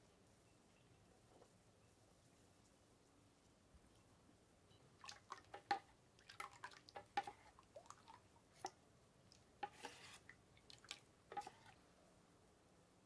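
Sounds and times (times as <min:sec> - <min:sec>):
wet batter sounds: 0:05.0 - 0:11.8.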